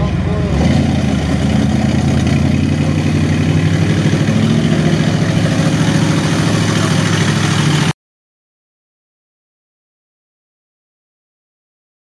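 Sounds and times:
truck engine revving high: 0.0 - 8.0.

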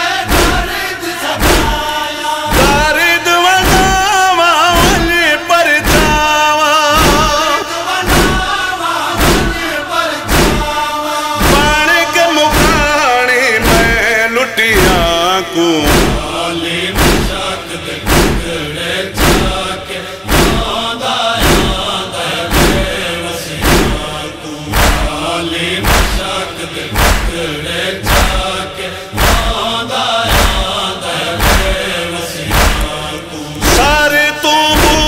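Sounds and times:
male voices chanting in unison: 0.0 - 35.0
chest-beating thumps: 0.2 - 0.8, 1.4 - 3.0, 3.6 - 4.1, 4.7 - 5.2, 5.8 - 8.6, 9.2 - 11.9, 12.5 - 13.0, 13.6 - 14.1, 14.8 - 28.6, 29.2 - 29.7, 30.3 - 30.8, 31.4 - 34.1, 34.7 - 35.0.

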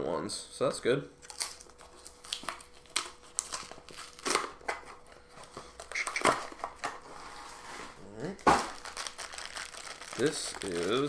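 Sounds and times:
cardboard packaging crinkling: 1.3 - 5.1, 8.3 - 11.0.

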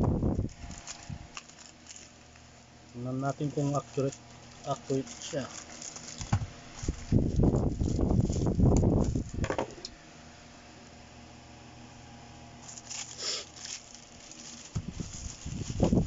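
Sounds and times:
faint steady hum: 0.0 - 16.0
plastic pouch crinkling and rustling: 0.3 - 2.5, 3.2 - 9.4, 12.6 - 16.0.

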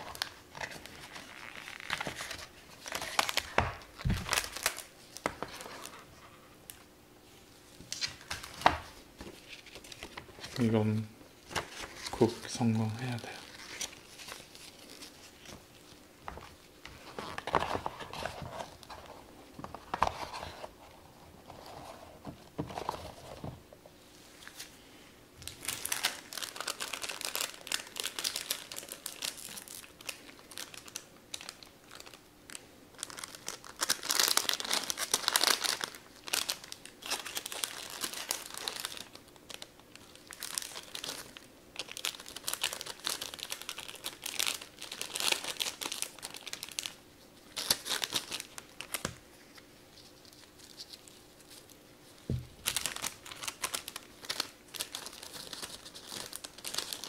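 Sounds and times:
foil pouch crinkling: 0.0 - 6.0, 25.4 - 51.7, 52.6 - 57.0
cardboard packaging rustling: 0.0 - 6.4, 7.8 - 23.6, 25.4 - 51.6, 52.2 - 57.0.

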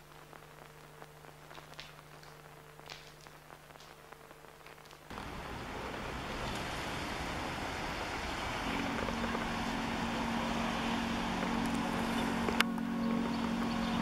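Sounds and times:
traffic and rain hiss: 0.0 - 14.0
low hum: 4.0 - 14.0.

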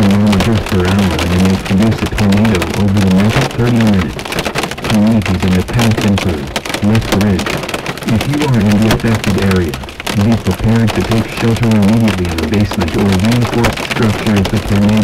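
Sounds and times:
man talking on car radio: 0.0 - 4.2, 4.9 - 15.0
rain and hail on car roof: 0.0 - 15.0.

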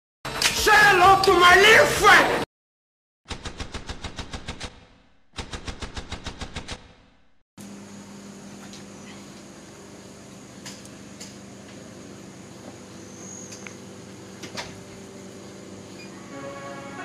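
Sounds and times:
music: 0.3 - 2.4, 16.1 - 17.0.

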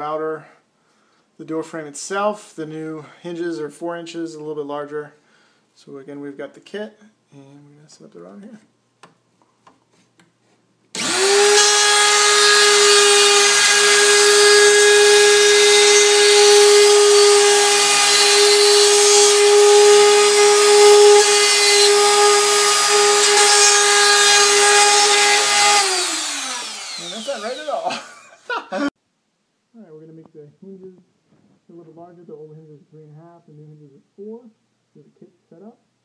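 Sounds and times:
router high whine: 11.0 - 28.0.

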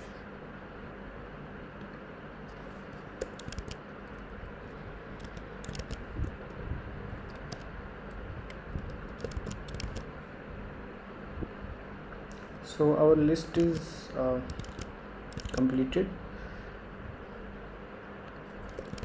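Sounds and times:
low background hum: 0.0 - 19.0
computer keyboard typing: 3.0 - 4.3, 5.2 - 6.4, 7.2 - 7.7, 8.4 - 10.1, 13.5 - 15.8, 18.6 - 19.0.

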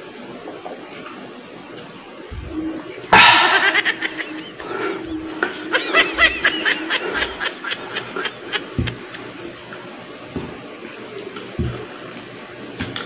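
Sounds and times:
man giggling: 3.2 - 9.3.

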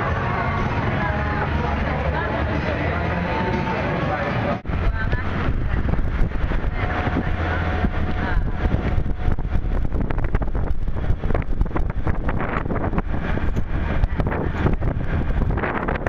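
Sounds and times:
vehicle rumble on road: 0.0 - 16.0
wind buffeting microphone: 4.6 - 16.0.

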